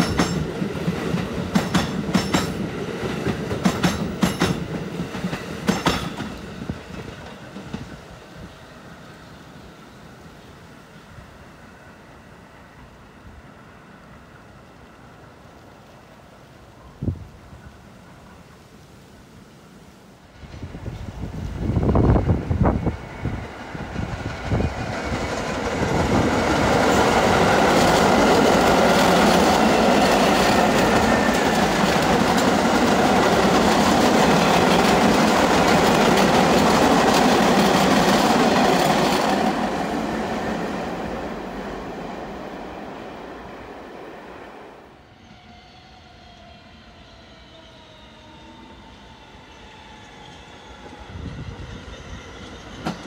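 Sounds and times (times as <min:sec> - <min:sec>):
subway train wheels clattering: 0:00.0 - 0:16.0, 0:20.2 - 0:45.5, 0:46.2 - 0:53.0
wind gust on microphone: 0:20.4 - 0:38.0, 0:51.0 - 0:52.4.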